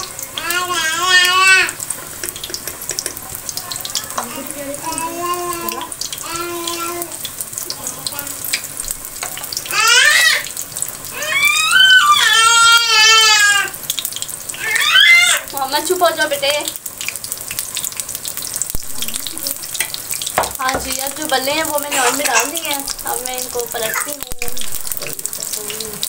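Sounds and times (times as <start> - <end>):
dumplings sizzling in hot oil: 0.0 - 26.0
child crying out: 0.4 - 1.8, 4.8 - 7.2, 9.7 - 10.5, 11.1 - 13.8, 14.5 - 15.5, 21.9 - 22.7, 23.8 - 24.2
spoon stirring: 1.9 - 3.4.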